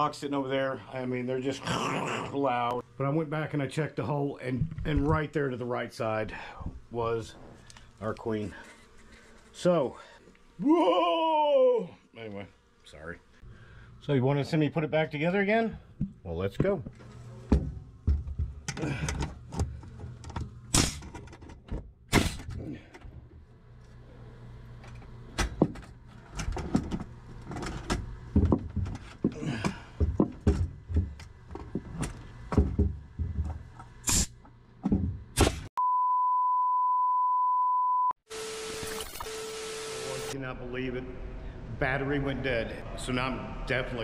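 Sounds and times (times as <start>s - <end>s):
nail gun firing into wood: 20.7s - 21.2s
high electronic beep: 35.8s - 38.2s.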